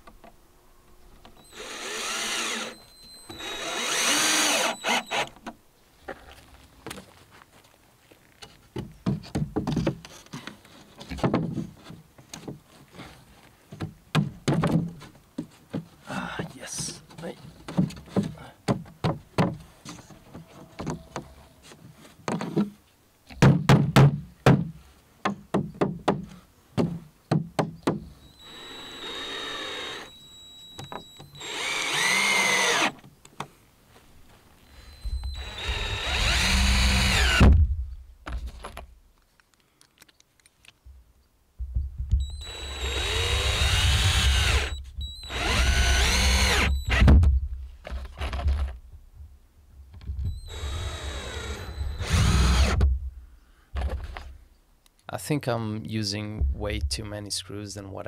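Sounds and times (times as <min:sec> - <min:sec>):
power drill driving screws: 0:01.4 - 0:05.4, 0:28.2 - 0:33.0, 0:34.6 - 0:37.5, 0:42.2 - 0:47.1, 0:50.3 - 0:52.8.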